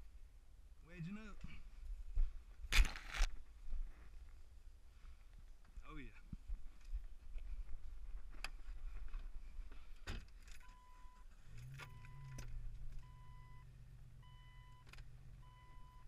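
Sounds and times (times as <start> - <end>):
low steady hum: 10.4 - 16.0
dashboard warning chime beeping: 10.7 - 11.2, 11.9 - 12.4, 13.0 - 16.0.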